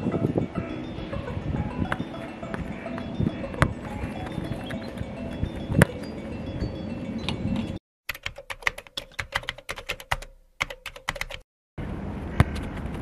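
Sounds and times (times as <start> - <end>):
keyboard typing clicks: 7.2 - 11.4.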